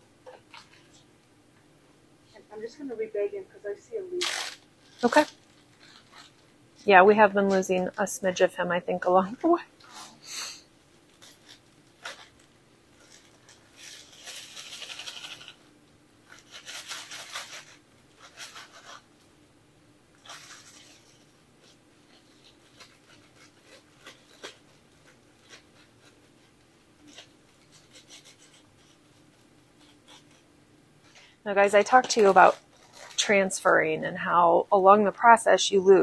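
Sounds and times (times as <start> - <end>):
faint steady hum: 0.0 - 36.0
plastic bag crinkling: 0.3 - 1.0, 3.6 - 6.5, 11.0 - 15.6, 16.3 - 19.0, 20.1 - 30.4, 31.0 - 33.7.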